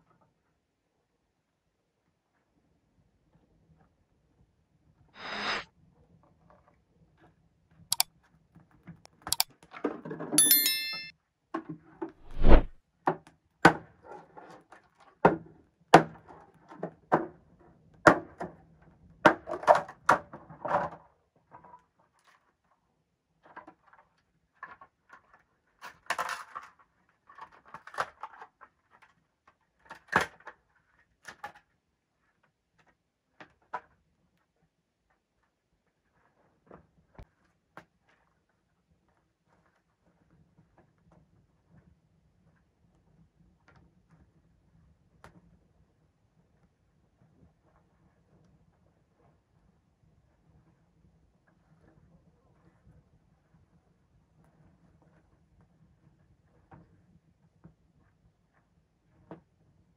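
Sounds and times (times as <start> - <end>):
short metallic ring: 10.4 - 11.1, 12.2 - 12.7.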